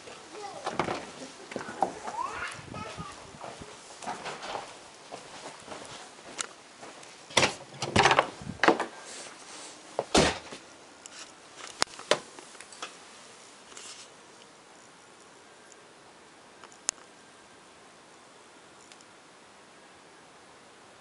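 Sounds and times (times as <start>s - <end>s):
knocks and clatters: 0.6s - 2.2s, 7.3s - 8.9s.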